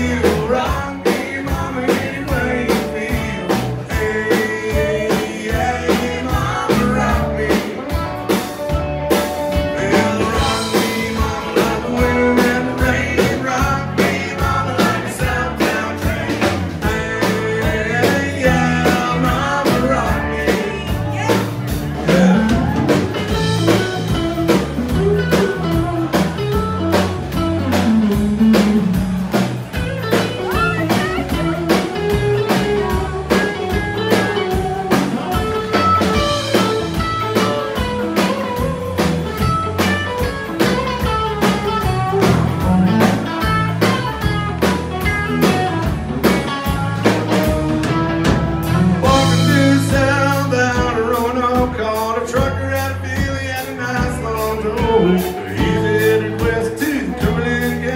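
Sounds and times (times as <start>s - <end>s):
person singing: 0.0s - 8.1s, 9.5s - 24.2s, 30.3s - 39.5s, 48.7s - 57.9s
live country band: 0.0s - 57.9s.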